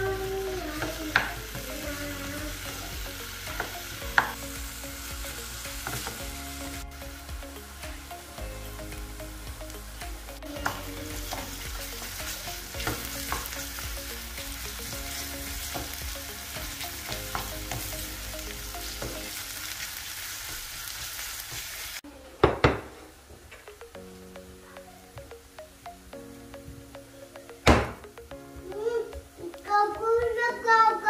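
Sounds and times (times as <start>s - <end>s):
vegetables sizzling in a frying pan: 0.0s - 8.2s, 9.3s - 22.0s.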